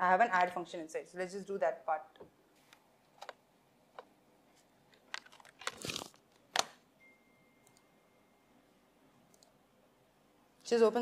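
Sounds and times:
faint steady high tone: 0:06.9 - 0:09.0.

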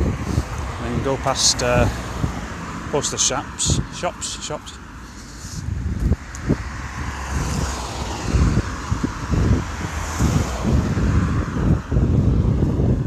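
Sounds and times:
car passing with tyre noise: 0:00.0 - 0:13.0
wind buffeting microphone: 0:00.0 - 0:13.0.

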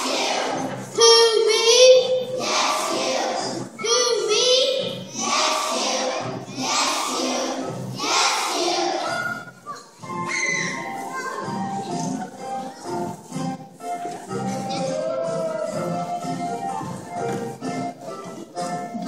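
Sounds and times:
children singing together: 0:00.0 - 0:09.5.

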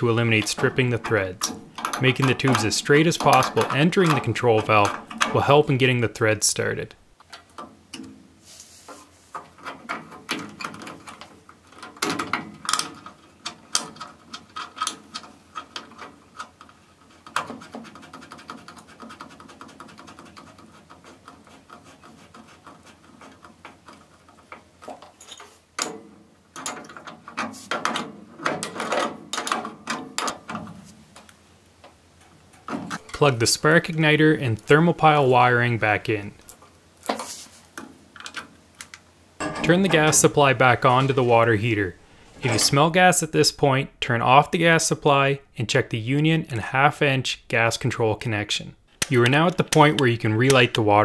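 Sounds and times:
metal fittings clicking and tapping: 0:00.0 - 0:05.9.

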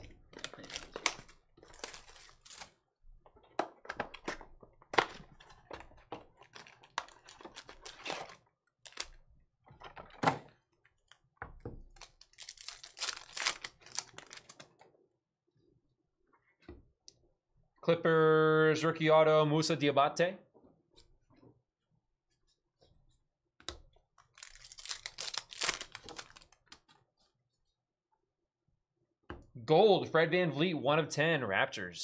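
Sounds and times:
card packs clicking and rustling: 0:00.2 - 0:02.8, 0:03.4 - 0:09.2, 0:11.9 - 0:14.8, 0:24.2 - 0:26.9
foil crinkling: 0:00.4 - 0:02.8, 0:12.0 - 0:14.7, 0:24.3 - 0:26.7.

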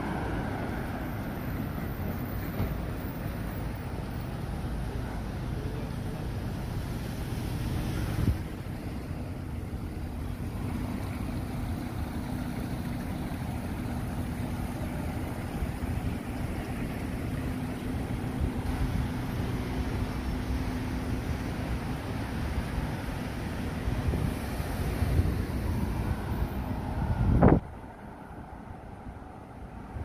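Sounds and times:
low traffic noise: 0:00.0 - 0:30.0
wind buffeting microphone: 0:23.8 - 0:27.8.

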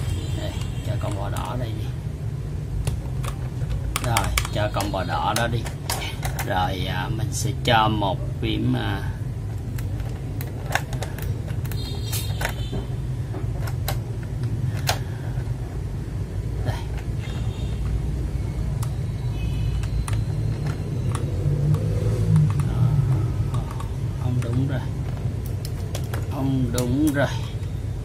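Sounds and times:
plastic keycaps clicking: 0:02.8 - 0:06.6, 0:09.6 - 0:12.8, 0:19.8 - 0:27.8.

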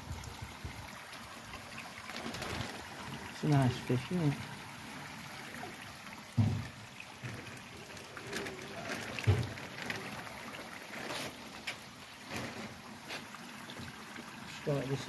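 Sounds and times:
water sloshing and trickling: 0:00.0 - 0:15.0
plastic crinkling: 0:02.0 - 0:02.9, 0:08.1 - 0:12.8.

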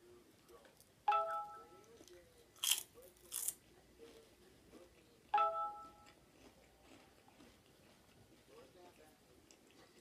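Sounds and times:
crunches of chip being bitten: 0:02.6 - 0:03.6.

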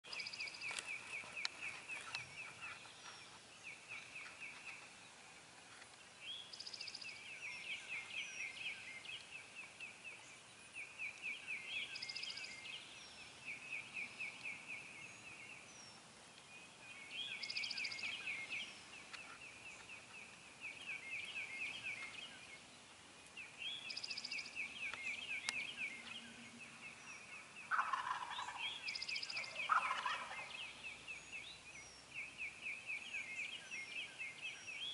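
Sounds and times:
turkeys gobbling: 0:27.7 - 0:28.8, 0:29.4 - 0:30.6.

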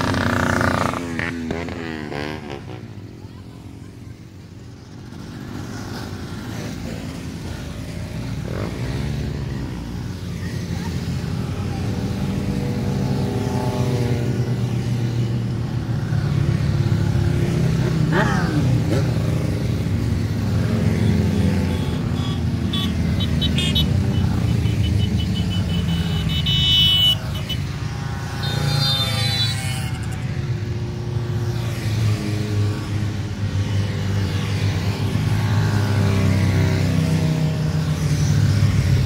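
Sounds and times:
motorcycle revving sharply: 0:00.0 - 0:02.9
motorcycles riding past: 0:00.0 - 0:39.0.

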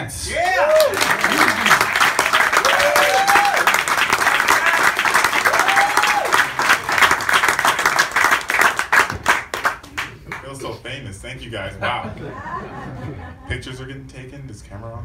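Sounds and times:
crowd cheers: 0:00.2 - 0:07.3
audience applauding: 0:00.3 - 0:10.5.

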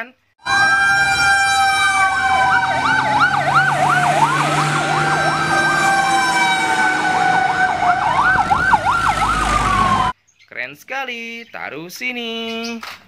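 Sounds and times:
siren wailing: 0:00.4 - 0:10.2
siren yelp warbling: 0:00.4 - 0:10.2
steady high siren tone: 0:00.4 - 0:10.2
diesel engine rumble: 0:01.9 - 0:10.1.

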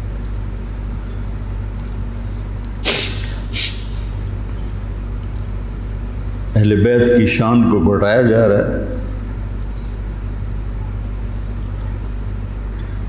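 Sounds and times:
steady low hum: 0:00.0 - 0:13.0
man sniffling while weeping: 0:02.8 - 0:04.1.

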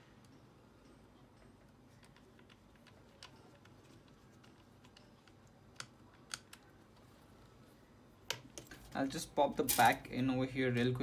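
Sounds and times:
clicks and taps of small parts: 0:02.0 - 0:06.7.

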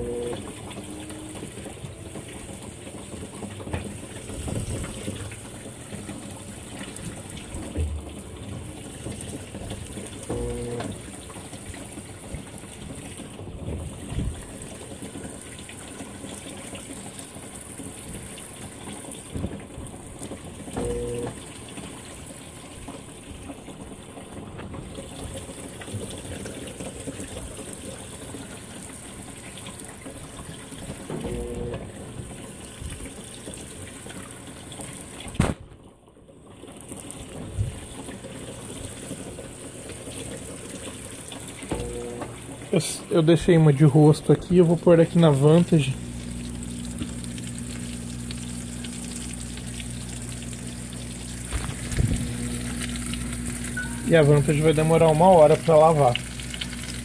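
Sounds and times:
short low hum: 0:00.0 - 0:01.4, 0:10.2 - 0:11.0, 0:20.7 - 0:21.4, 0:31.2 - 0:32.0, 0:41.7 - 0:42.5, 0:45.9 - 0:54.2
water filling washing machine: 0:00.0 - 0:57.0.

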